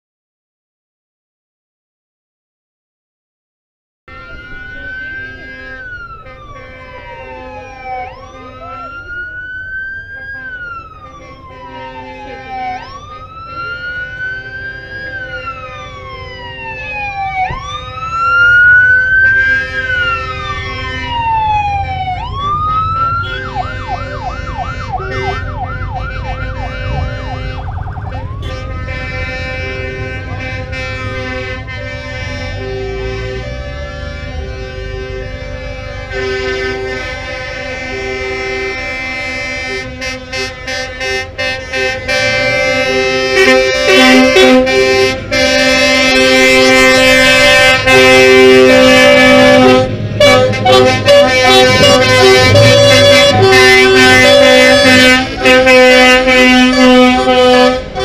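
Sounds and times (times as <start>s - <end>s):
siren wailing: 4.1s - 31.6s, 42.1s - 58.0s
siren yelp: 4.1s - 39.9s, 41.8s - 58.0s
motorcycle passing: 17.3s - 31.6s.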